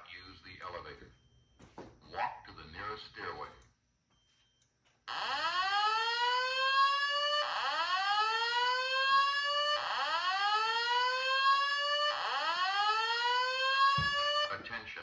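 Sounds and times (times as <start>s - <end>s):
fire alarm whoop tone: 4.2s - 14.6s.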